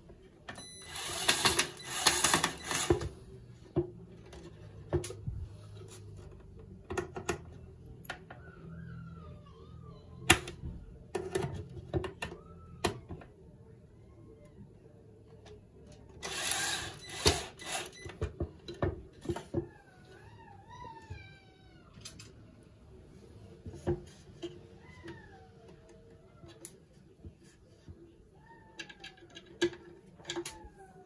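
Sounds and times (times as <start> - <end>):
cordless drill driving screws: 0.9 - 3.0, 16.2 - 18.0.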